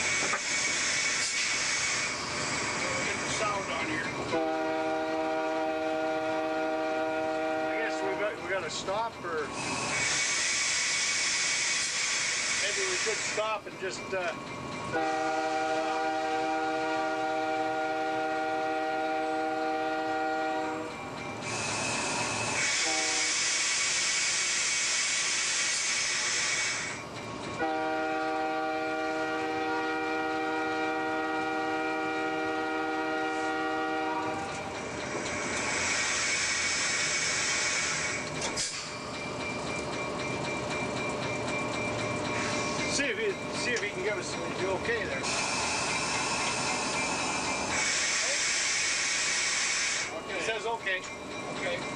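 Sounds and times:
loud air hiss: 0:00.0 - 0:03.7, 0:09.5 - 0:13.5, 0:21.4 - 0:27.1, 0:34.8 - 0:39.0, 0:45.2 - 0:50.2
locomotive air horn blasts: 0:04.3 - 0:08.4, 0:14.9 - 0:20.9, 0:22.6 - 0:23.6, 0:27.6 - 0:34.6.

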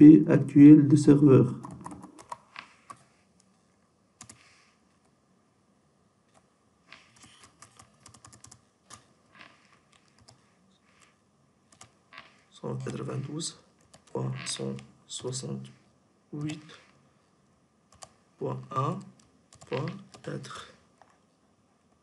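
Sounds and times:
faint keyboard typing: 0:01.4 - 0:03.6, 0:04.2 - 0:05.2, 0:06.3 - 0:15.8, 0:16.4 - 0:17.0, 0:17.9 - 0:21.2.

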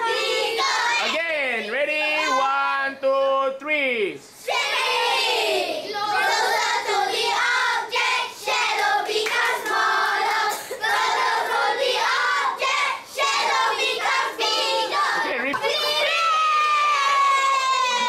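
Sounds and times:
children singing in unison: 0:04.5 - 0:15.4.

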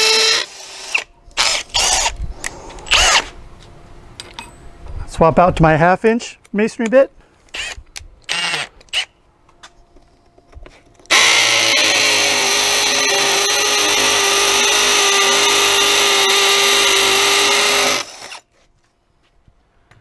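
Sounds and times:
hammer drill boring into brick: 0:00.0 - 0:02.1, 0:11.1 - 0:18.4.

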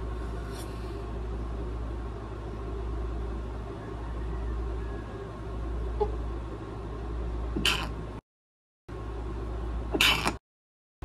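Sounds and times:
faint hum: 0:00.0 - 0:08.2.

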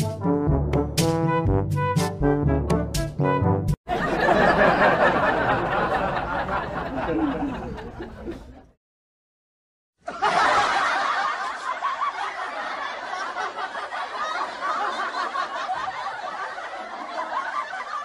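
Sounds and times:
people laughing: 0:03.9 - 0:08.8, 0:10.0 - 0:18.0.

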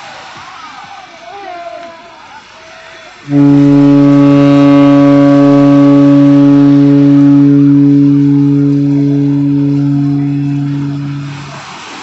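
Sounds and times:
ship's horn blast: 0:03.2 - 0:11.9.

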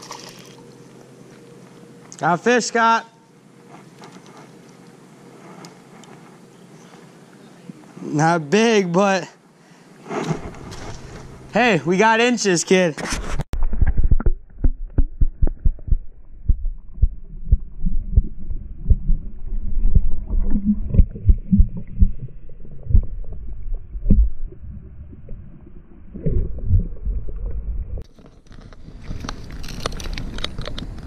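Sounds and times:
stream water: 0:00.0 - 0:00.7
low underwater rumble: 0:13.6 - 0:28.1
dull underwater thumps: 0:19.8 - 0:22.2.

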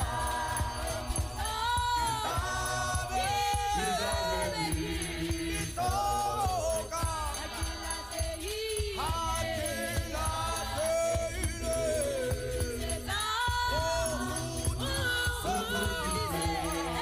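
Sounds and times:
hand claps: 0:00.0 - 0:04.9
drum: 0:00.0 - 0:17.0
gospel choir singing: 0:00.0 - 0:17.0
jingling hand percussion: 0:00.0 - 0:17.0.

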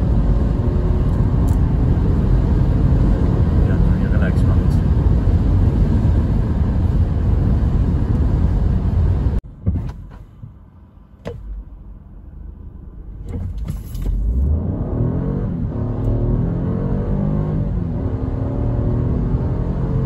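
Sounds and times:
drivetrain whine: 0:00.0 - 0:20.0
road and wind noise: 0:00.0 - 0:20.0
car accelerating: 0:14.1 - 0:20.0.

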